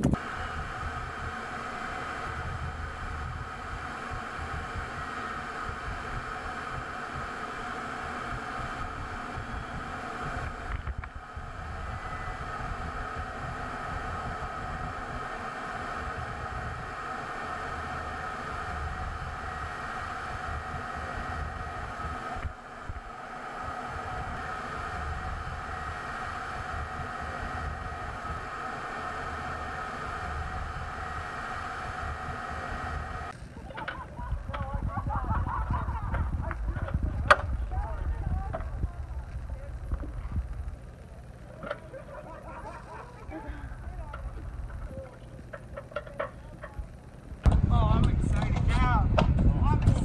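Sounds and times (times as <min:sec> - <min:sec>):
jet engine drone in cockpit: 0:00.0 - 0:50.0.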